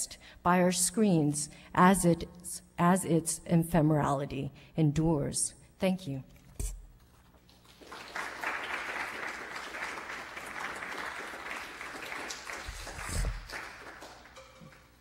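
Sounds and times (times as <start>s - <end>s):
audience applauding: 7.6s - 15.0s.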